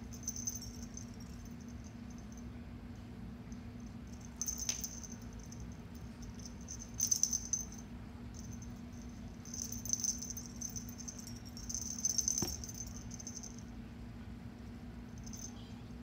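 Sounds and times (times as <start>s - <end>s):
low hum: 0.0s - 15.5s
cat toy beads rattling: 0.1s - 2.4s, 3.6s - 13.6s.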